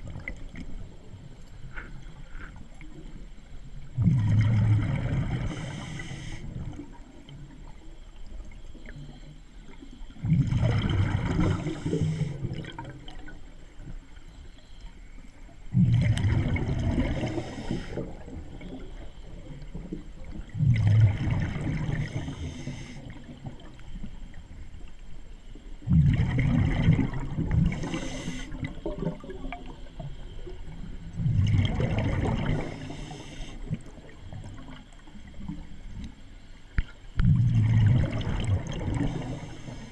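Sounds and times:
underwater gurgling: 0.0 - 39.9
exhaled bubbles rushing: 3.9 - 6.0, 10.2 - 13.4, 15.7 - 18.8, 19.7 - 22.6, 25.8 - 35.6, 37.2 - 39.9.

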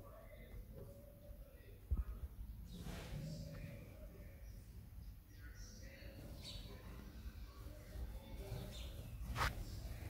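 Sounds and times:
sparrow chirp: 2.4 - 10.0.

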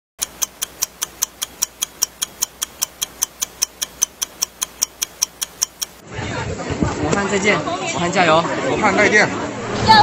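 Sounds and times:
fast clock ticking: 0.2 - 6.0.

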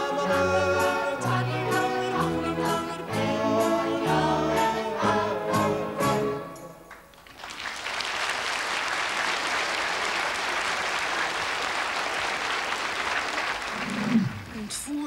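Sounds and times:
choir and orchestra chord: 0.0 - 6.7
audience applauding: 6.9 - 14.7.

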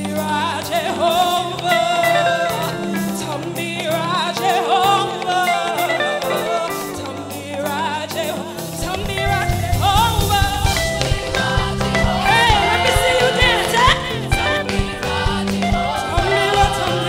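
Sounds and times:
drums: 0.0 - 17.0
guitars: 0.0 - 17.0
woman singing: 0.0 - 17.0
electric bass: 8.7 - 17.0.

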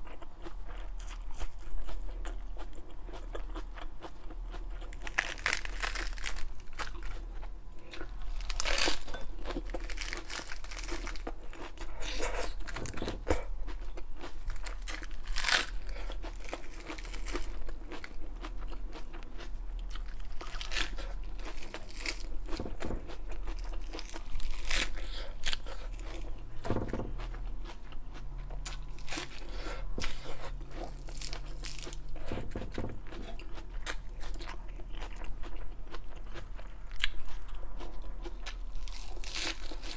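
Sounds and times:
chewing: 0.0 - 26.5
lettuce crunching: 0.0 - 26.5, 27.2 - 37.5, 38.2 - 39.9.

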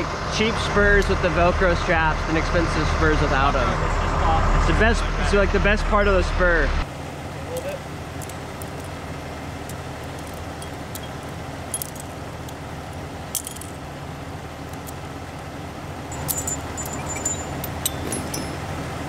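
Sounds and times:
engine idling: 0.0 - 19.0
metal climbing gear clinking: 10.0 - 13.9, 16.1 - 19.0
high ringing note: 16.1 - 18.7.

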